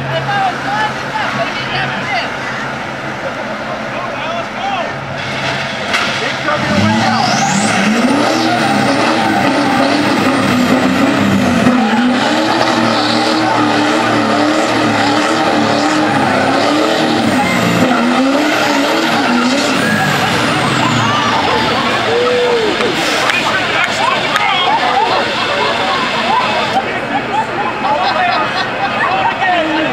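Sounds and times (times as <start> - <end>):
diesel engines revving hard: 0.0 - 29.9
tires spinning and skidding on asphalt: 0.0 - 29.9.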